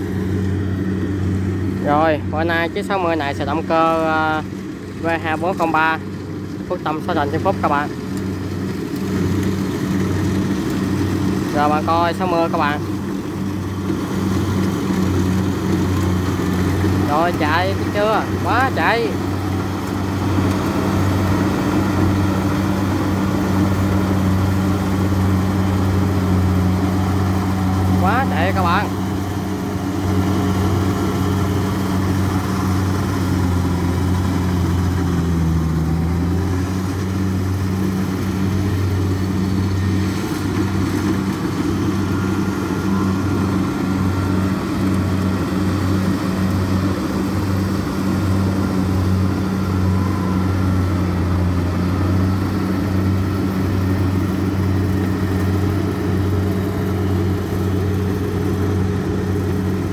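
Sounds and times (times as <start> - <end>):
combine harvester diesel engine: 0.0 - 59.9.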